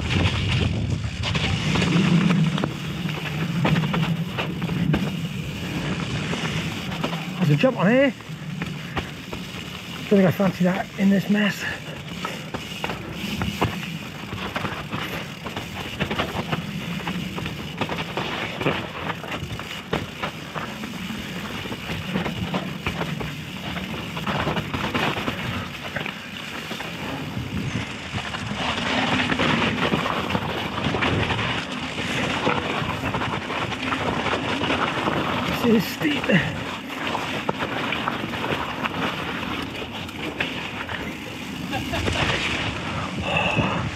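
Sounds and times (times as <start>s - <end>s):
wind on microphone: 0.0s - 6.8s
bike tyres churning over mud: 0.0s - 43.9s.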